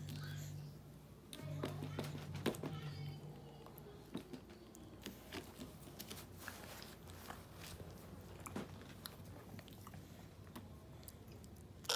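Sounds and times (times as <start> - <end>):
toddler chewing: 3.8 - 11.9.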